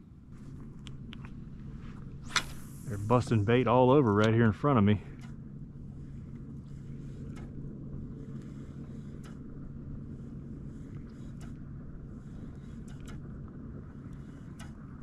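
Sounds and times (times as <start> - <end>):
outboard engine drone: 0.0 - 15.0
faint ticks: 6.2 - 15.0.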